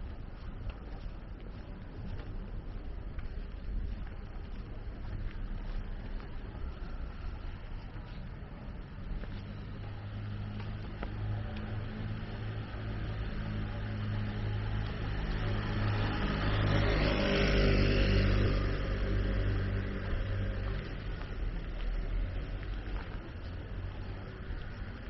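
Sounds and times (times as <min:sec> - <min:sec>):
vehicle passing by: 0:09.3 - 0:25.0.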